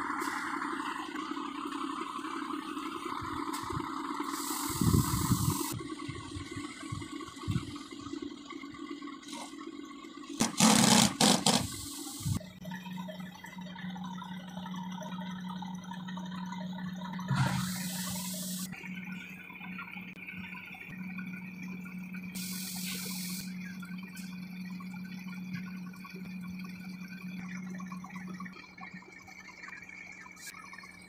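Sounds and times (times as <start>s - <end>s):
compressed air hissing: 4.2s - 5.8s, 10.4s - 12.4s, 17.4s - 18.7s, 22.4s - 23.5s.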